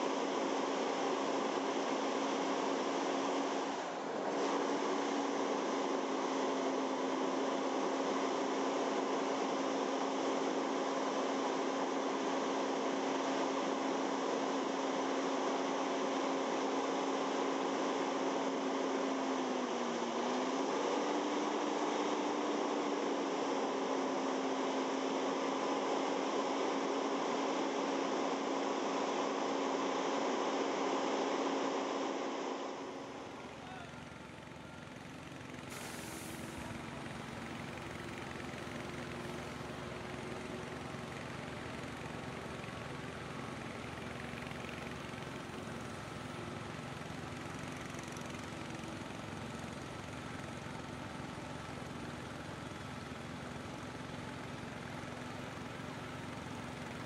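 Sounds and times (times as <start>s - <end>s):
fire truck engine and pump droning: 0.0s - 57.0s.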